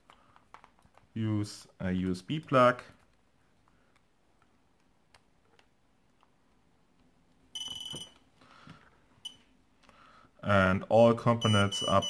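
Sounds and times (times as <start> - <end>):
high-pitched electronic beep: 11.4 - 12.0.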